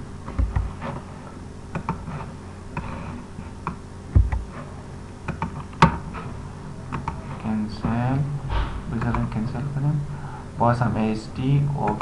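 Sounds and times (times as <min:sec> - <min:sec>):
low steady hum: 0:00.0 - 0:12.0
computer mouse clicking: 0:01.7 - 0:02.0, 0:05.3 - 0:06.0
dull thump: 0:04.1 - 0:04.5, 0:08.5 - 0:09.2.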